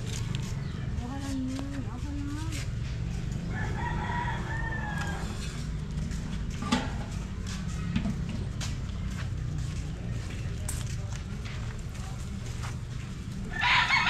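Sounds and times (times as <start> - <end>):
rooster crowing: 3.5 - 5.5, 13.5 - 14.0.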